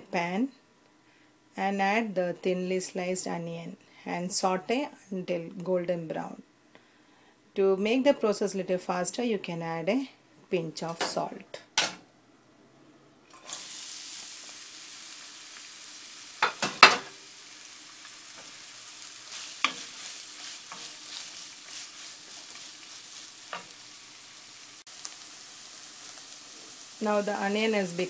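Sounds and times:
onions sizzling in oil: 13.3s - 28.0s
wooden spoon scraping a pan: 19.2s - 23.8s.

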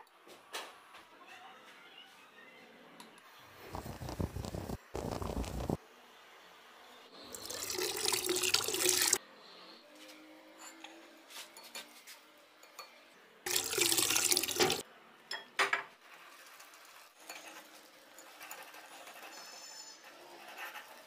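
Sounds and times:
water pouring: 3.6s - 5.8s, 7.3s - 9.2s, 13.5s - 14.8s
whisk rustling through batter: 3.6s - 5.8s, 16.0s - 19.4s.

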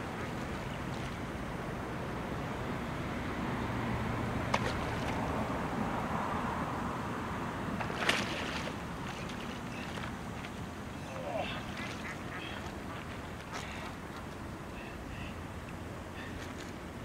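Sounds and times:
water noise: 0.0s - 17.0s
wind: 0.0s - 17.0s
sharp splashes: 4.4s - 5.3s, 7.8s - 10.6s.

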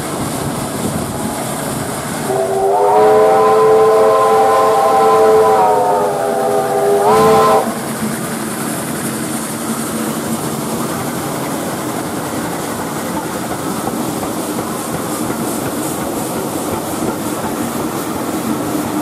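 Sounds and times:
steam train running on rails: 0.0s - 19.0s
steam locomotive whistle: 2.2s - 7.8s.

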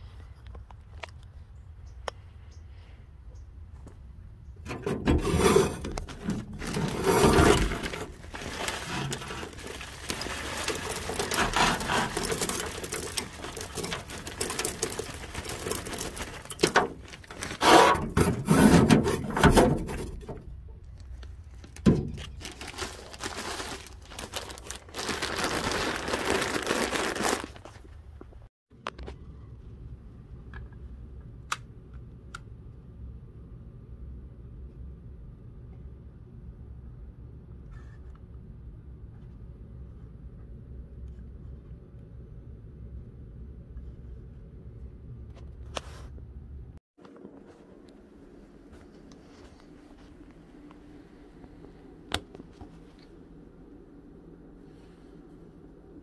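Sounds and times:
wood chips poured into metal box: 5.2s - 18.1s.

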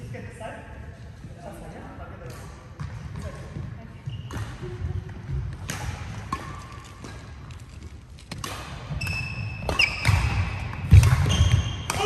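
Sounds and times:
shoes squeaking on floor: 4.0s - 4.5s, 8.9s - 11.9s
racket hitting shuttlecock: 4.3s - 12.0s.

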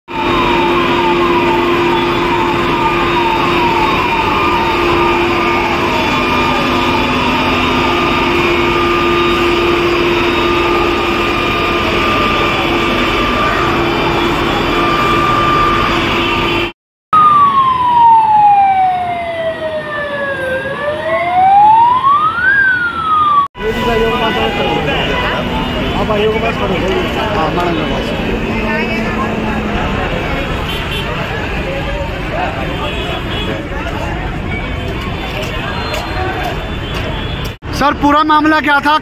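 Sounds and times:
yelping siren: 0.1s - 16.6s, 17.2s - 30.7s
wailing siren: 0.1s - 32.2s.

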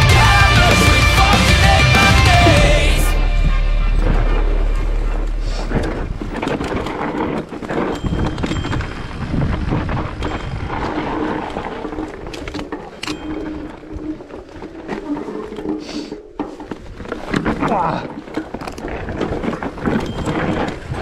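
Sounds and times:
tyres on stones: 0.0s - 21.0s
wind on microphone: 5.7s - 12.6s.

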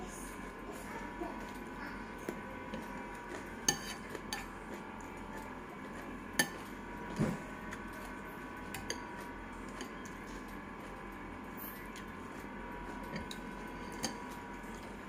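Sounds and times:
fork and spoon clinking on a bowl: 2.7s - 6.7s, 8.7s - 10.2s, 13.1s - 14.8s.

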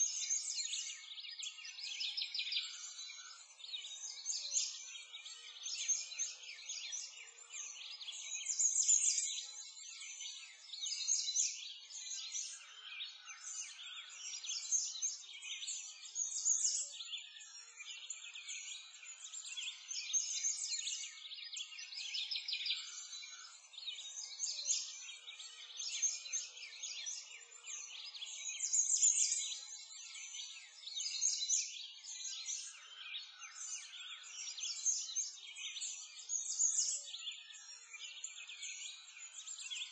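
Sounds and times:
small birds chirping and twittering: 0.0s - 39.9s.

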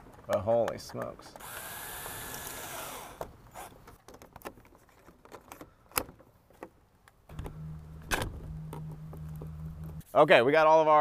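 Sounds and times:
steady low hum: 7.3s - 10.0s.

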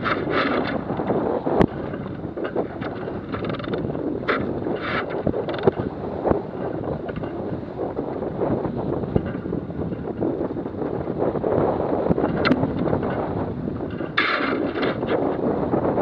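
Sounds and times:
water rushing along hull: 0.0s - 16.0s
wind buffeting microphone: 0.0s - 16.0s
sharp knocks: 13.9s - 15.1s.

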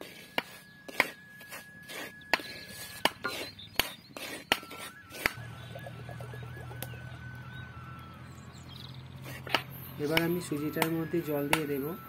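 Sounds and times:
spatula scraping in a pot: 0.0s - 5.4s.

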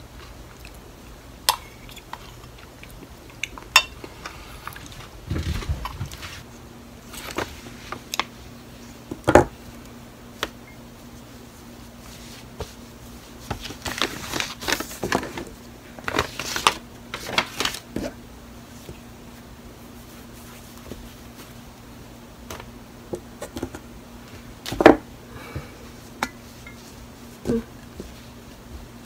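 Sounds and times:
faint steady hum: 0.0s - 29.0s
hands rustling yarn and paper: 18.8s - 21.7s.

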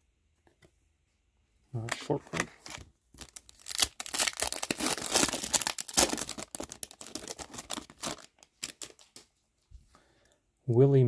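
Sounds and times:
wrapper crinkling: 2.7s - 9.3s.

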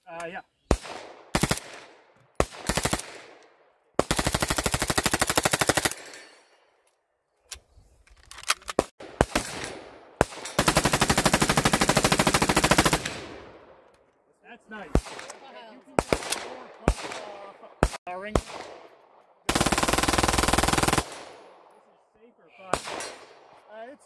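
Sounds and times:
rifle automatic burst: 0.7s - 3.4s, 4.0s - 6.1s, 9.0s - 13.6s, 19.5s - 21.4s
single gunshots: 0.7s - 3.4s, 14.9s - 18.9s, 22.6s - 23.6s.

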